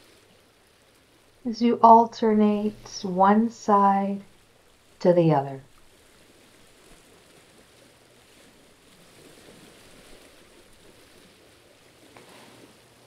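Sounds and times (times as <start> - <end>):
sea water washing on rocky shore: 5.7 - 13.0.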